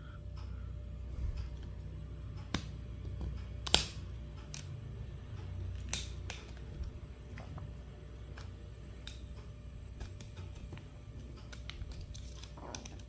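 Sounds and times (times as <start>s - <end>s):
plastic clips snapping loose: 3.6s - 4.7s, 5.8s - 6.7s.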